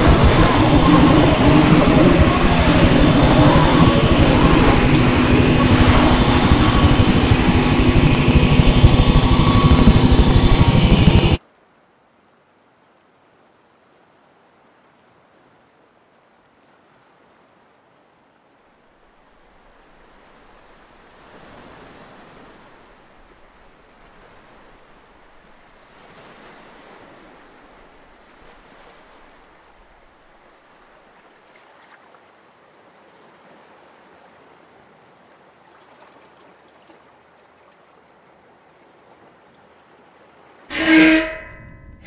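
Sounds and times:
sea surf washing against rocks: 0.0s - 11.4s.

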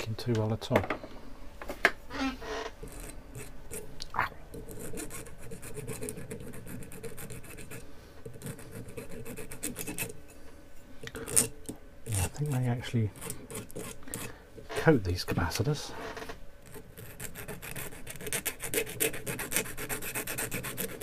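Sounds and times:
hand file rasping on metal: 8.4s - 10.2s, 12.1s - 14.4s, 16.7s - 21.0s.

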